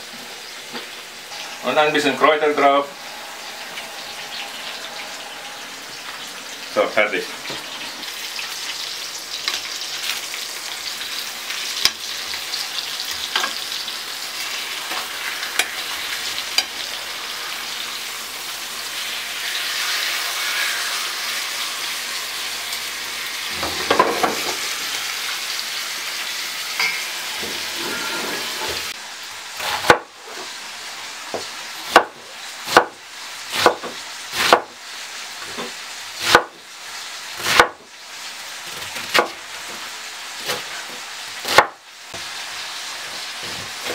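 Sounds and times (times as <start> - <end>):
steaks sizzling in a pan: 0.0 - 43.9
fork and spoon clinking on pan: 26.8 - 27.1
knife cutting cabbage on board: 31.9 - 34.8, 40.4 - 41.8.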